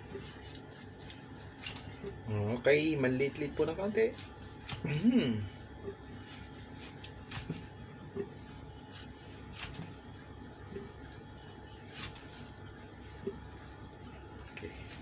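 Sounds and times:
cleaver cutting fish: 0:00.0 - 0:02.2, 0:03.5 - 0:05.1, 0:06.2 - 0:10.2, 0:11.2 - 0:12.6, 0:14.4 - 0:15.0.

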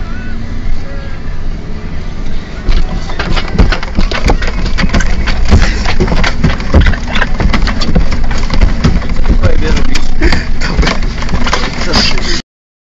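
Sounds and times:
bus engine and road rumble: 0:00.0 - 0:12.4
sharp knocks and heavy thumps: 0:02.7 - 0:12.2.

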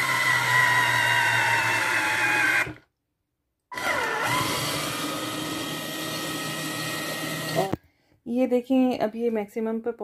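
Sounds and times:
juicer motor whining: 0:00.0 - 0:02.9, 0:03.7 - 0:07.8.

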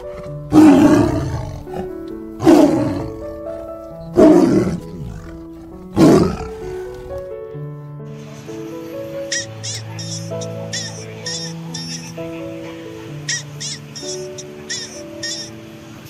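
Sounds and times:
tiger roaring: 0:00.0 - 0:07.3
background music: 0:00.0 - 0:16.0.

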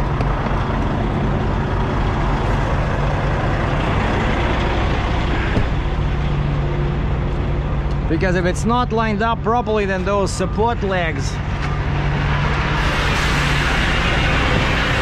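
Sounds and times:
diesel truck engine idling: 0:00.0 - 0:15.0.

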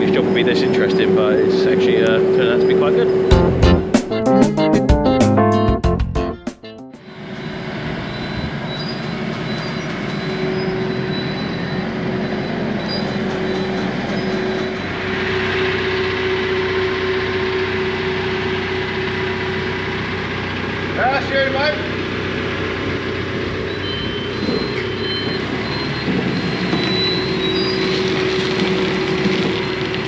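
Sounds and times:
diesel engine running under load: 0:07.0 - 0:30.0.

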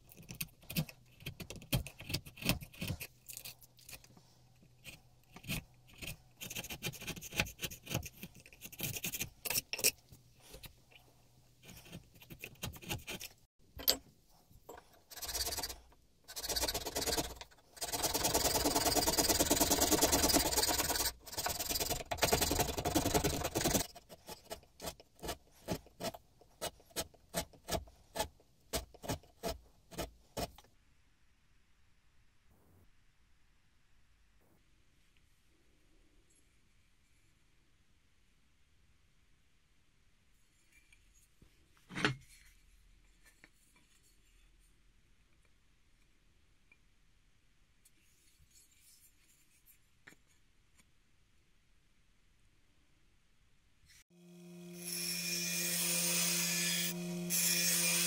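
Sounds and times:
chisel cutting wood: 0:11.6 - 0:13.3, 0:15.1 - 0:30.6, 0:54.6 - 0:58.0.

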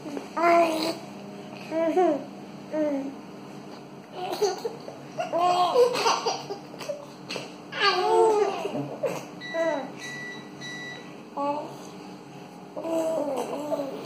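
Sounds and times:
babies giggling: 0:04.2 - 0:09.3, 0:12.8 - 0:14.0.

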